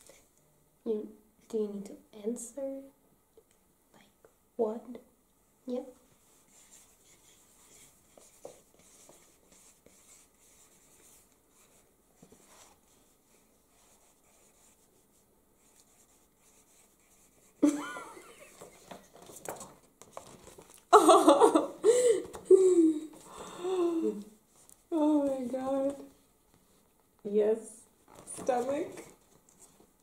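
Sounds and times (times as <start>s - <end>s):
pens scratching on paper: 6.1s - 17.6s, 28.2s - 29.8s
women laughing: 17.6s - 18.8s, 20.9s - 23.0s.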